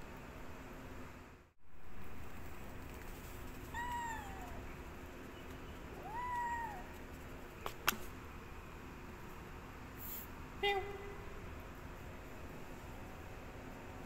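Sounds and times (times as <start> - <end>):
kitten meowing: 3.7 - 4.6, 6.0 - 7.0.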